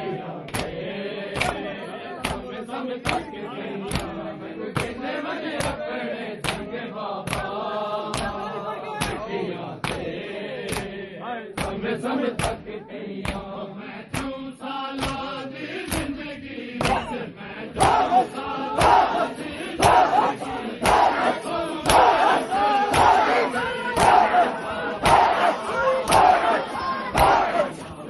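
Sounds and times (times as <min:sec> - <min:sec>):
men chanting in unison: 0:00.0 - 0:28.0
chest-beating slaps: 0:00.5 - 0:00.8, 0:01.4 - 0:01.6, 0:02.2 - 0:02.4, 0:03.0 - 0:03.3, 0:04.8 - 0:05.0, 0:14.1 - 0:14.4, 0:15.0 - 0:15.3, 0:16.8 - 0:17.1, 0:17.8 - 0:23.4, 0:24.0 - 0:24.4, 0:25.0 - 0:26.5, 0:27.2 - 0:27.6
crowd shouting: 0:16.8 - 0:28.0.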